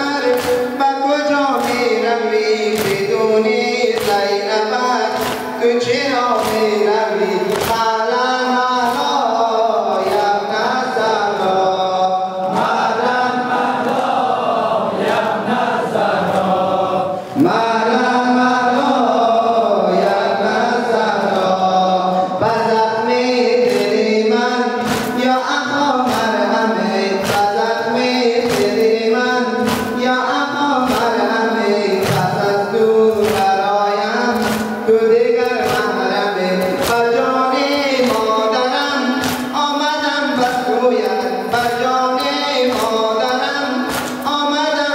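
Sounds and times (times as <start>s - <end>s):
men chanting a lament: 0.0s - 44.9s
hands slapping chests: 0.2s - 0.8s, 1.5s - 2.0s, 2.6s - 4.3s, 5.0s - 7.9s, 23.6s - 24.0s, 24.7s - 30.1s, 30.8s - 31.3s, 31.9s - 39.6s, 41.5s - 44.4s.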